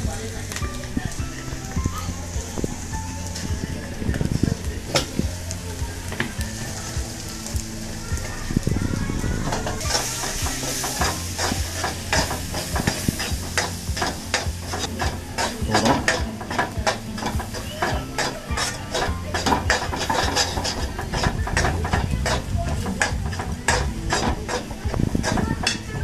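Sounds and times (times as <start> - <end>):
onions sizzling: 0.0 - 26.0
metal spoon scraping a pan: 9.4 - 26.0
spoon clinking against pan: 9.6 - 25.9.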